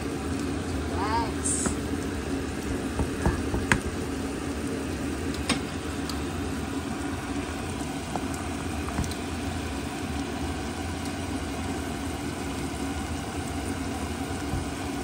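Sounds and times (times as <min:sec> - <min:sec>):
low mechanical hum: 0:00.0 - 0:15.0
vegetables cooking in a pan: 0:00.0 - 0:15.0.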